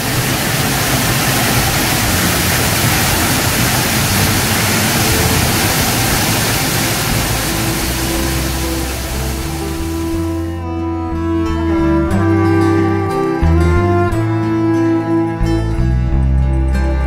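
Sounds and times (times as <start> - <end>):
waterfall rushing: 0.0 - 10.5.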